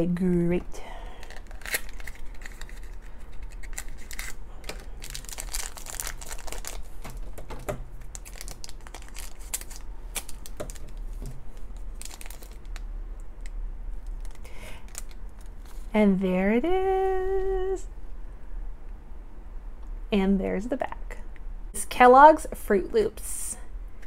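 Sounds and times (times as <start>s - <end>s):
plastic wrapper crinkling and tearing: 1.0s - 15.9s.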